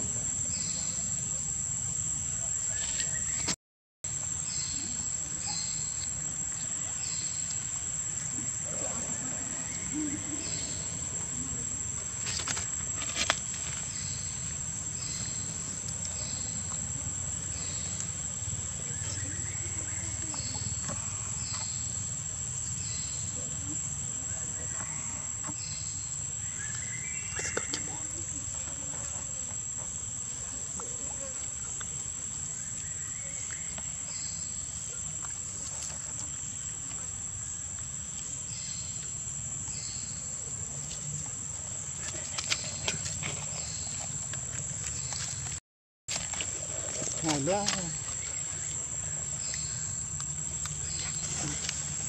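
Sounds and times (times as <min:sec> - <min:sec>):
insect chirps: 0:00.0 - 0:52.0
insect drone: 0:00.0 - 0:52.0.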